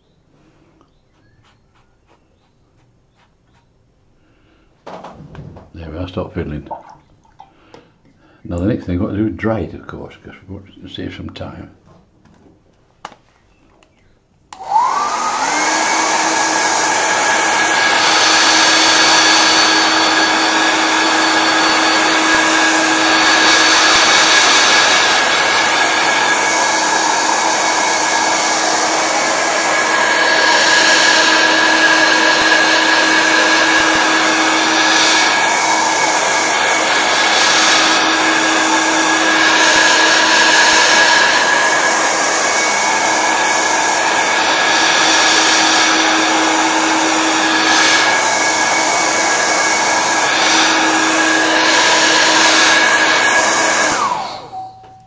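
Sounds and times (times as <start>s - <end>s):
hair dryer whining and blowing: 13.8s - 55.0s.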